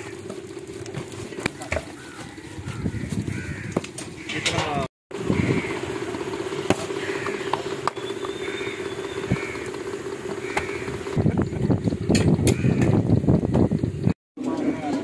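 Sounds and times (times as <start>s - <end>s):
mechanical hum: 0.0s - 15.0s
faint bird chirps: 7.4s - 9.7s.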